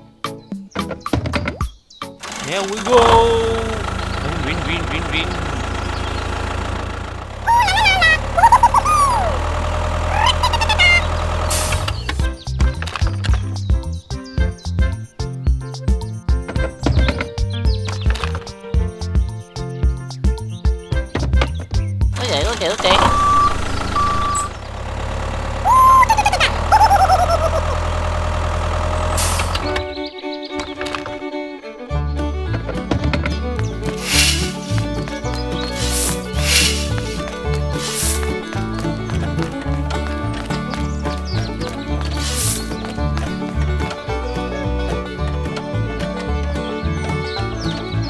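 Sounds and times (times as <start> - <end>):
tractor engine idling: 2.2 - 13.3, 22.1 - 30.1, 32.4 - 48.0
squeaky warbling voice-like sounds: 2.4 - 3.8, 7.5 - 9.4, 10.1 - 11.1, 22.2 - 23.4, 25.7 - 27.8
warbling chirps: 25.6 - 27.7
whistle-like tone: 25.7 - 26.1
short hiss: 34.0 - 34.8, 35.8 - 38.3.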